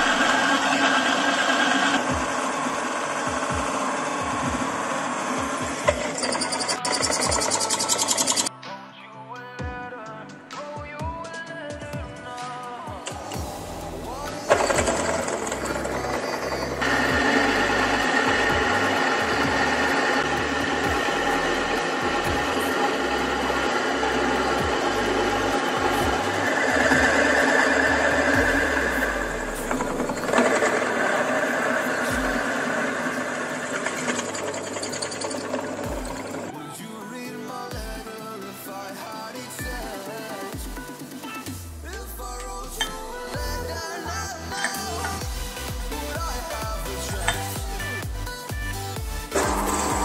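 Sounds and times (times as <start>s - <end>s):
drill press cutting metal: 0.0s - 8.5s, 13.1s - 36.7s, 44.5s - 48.0s, 49.2s - 50.0s.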